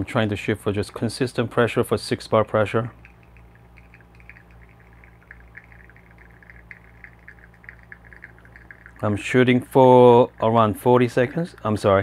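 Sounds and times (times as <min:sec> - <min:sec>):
faint soft ticking: 0:02.7 - 0:11.8
low hum: 0:02.7 - 0:11.8
espresso trickling into cup: 0:03.0 - 0:09.1.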